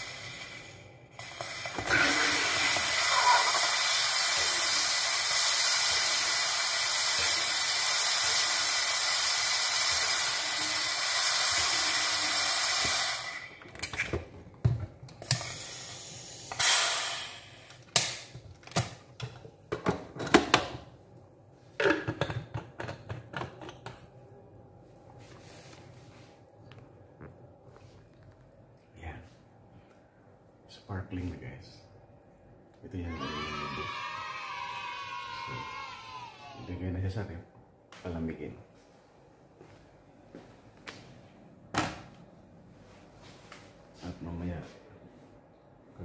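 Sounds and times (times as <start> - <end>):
loud gas hiss: 0.0 - 13.6, 15.2 - 17.8.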